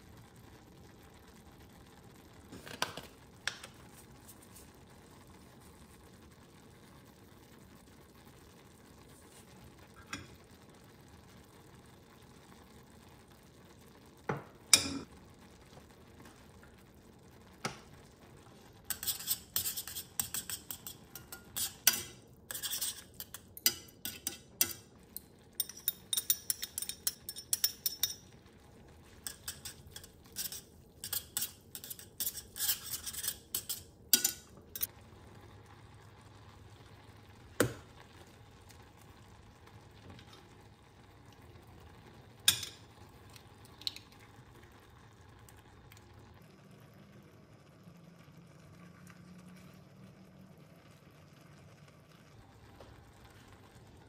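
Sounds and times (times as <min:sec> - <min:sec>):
chopsticks scraping frying pan: 0:18.8 - 0:24.9, 0:25.6 - 0:28.2, 0:29.1 - 0:34.9.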